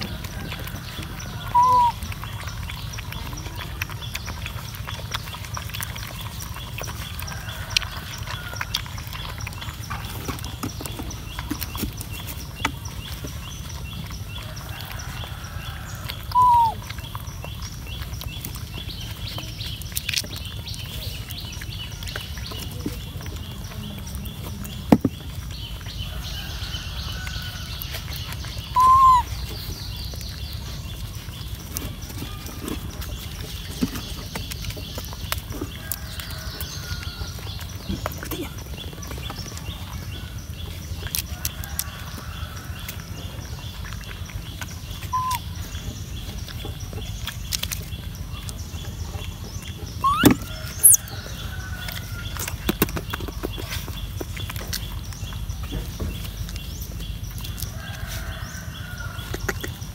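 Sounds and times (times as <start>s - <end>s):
puppies lapping milk: 0.0s - 59.9s
puppy high calls: 1.4s - 7.0s, 16.2s - 17.2s, 28.6s - 29.6s, 45.0s - 45.6s, 49.9s - 51.0s.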